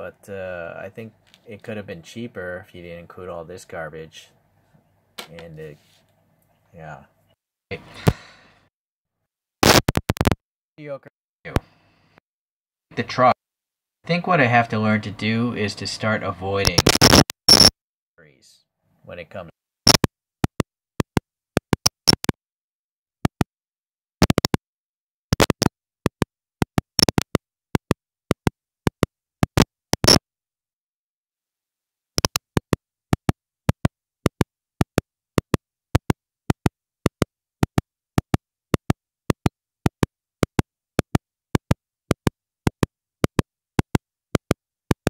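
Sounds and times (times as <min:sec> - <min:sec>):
microphone clicks and pops: 0:09.6 - 0:10.4, 0:16.6 - 0:17.8, 0:19.8 - 0:22.4, 0:23.2 - 0:23.5, 0:24.2 - 0:24.6, 0:25.3 - 0:30.2, 0:32.2 - 0:45.0.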